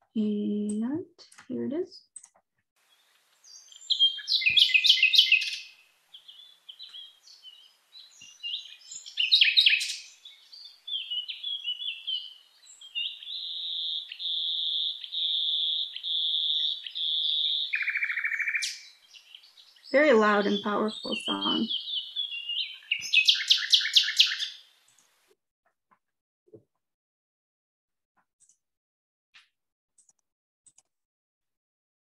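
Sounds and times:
nightingale singing: 2.8s - 24.6s.

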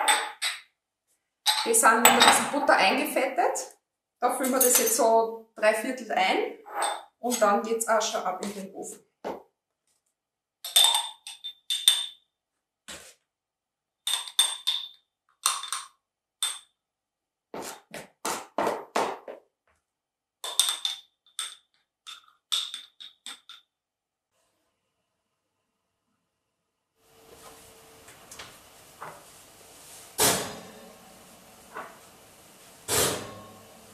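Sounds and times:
spoon clinking on glass jars: 1.5s - 2.4s, 10.7s - 12.2s, 14.1s - 16.7s.

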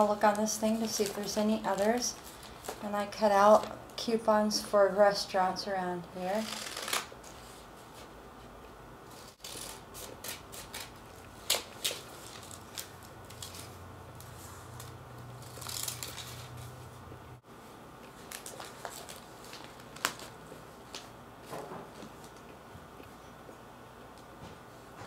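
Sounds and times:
paper rustling and crinkling: 0.3s - 2.8s, 9.1s - 16.8s, 18.1s - 22.4s
scissors snipping paper: 9.4s - 13.5s.

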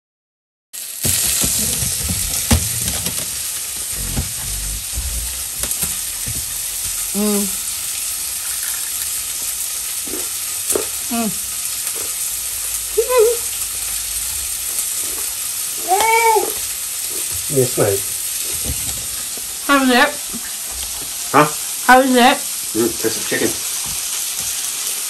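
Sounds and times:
chicken sizzling in hot oil: 0.8s - 4.2s, 5.4s - 25.0s
short voice-like calls: 3.9s - 7.7s.

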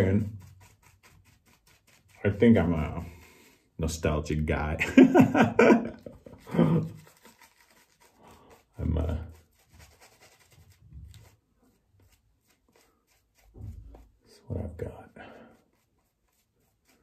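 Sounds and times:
faint soft rubbing: 0.0s - 4.3s, 5.9s - 17.0s
man laughing: 4.8s - 7.0s.

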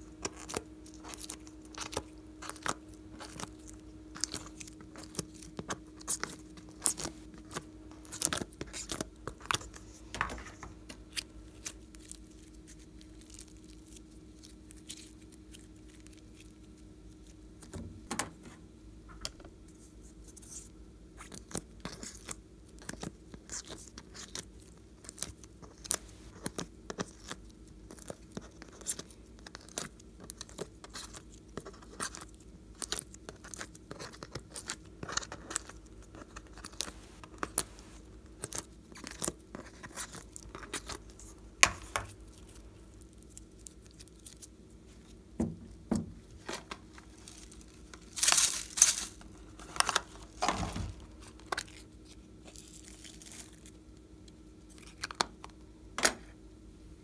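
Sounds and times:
rustling crackle: 46.2s - 53.8s.

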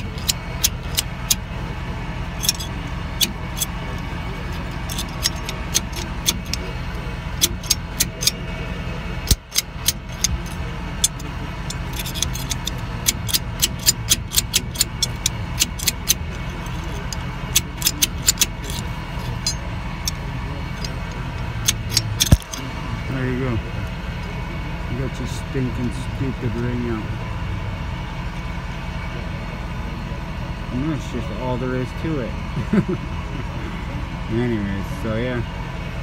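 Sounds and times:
low hum: 0.0s - 36.0s
metal clinks and taps: 9.3s - 20.2s.

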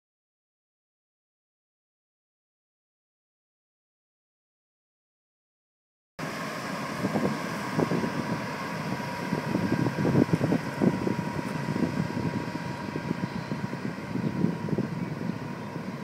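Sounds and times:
distant motorboat hum: 6.2s - 16.0s
wind buffeting microphone: 6.8s - 16.0s.

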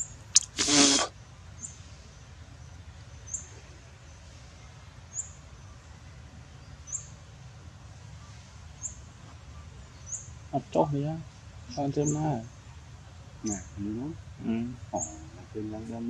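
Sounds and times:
short high bird chirp: 0.0s - 1.1s.

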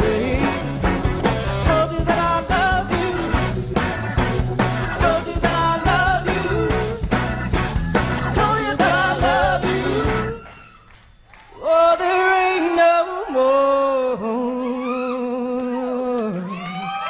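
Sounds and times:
live band playing: 0.0s - 10.4s.

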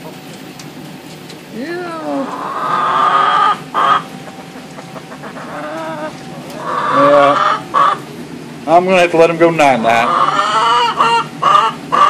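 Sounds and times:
hens calling: 2.1s - 8.6s, 9.6s - 12.0s.

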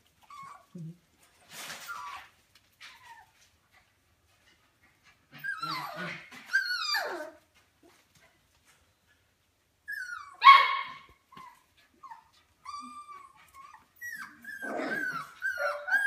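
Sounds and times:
puppies whining and yelping: 0.0s - 0.9s, 1.7s - 3.6s, 4.7s - 8.0s, 9.8s - 16.0s.

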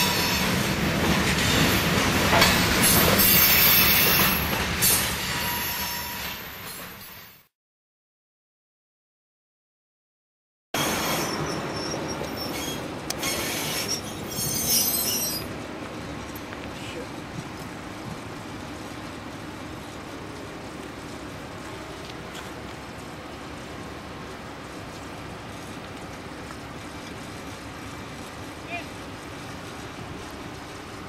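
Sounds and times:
wheel squeal: 10.8s - 15.5s
locomotive engine rolling: 10.8s - 31.0s.

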